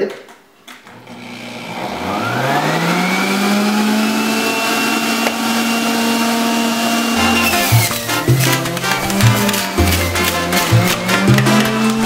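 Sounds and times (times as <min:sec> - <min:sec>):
juicer motor whining: 0:00.9 - 0:12.0.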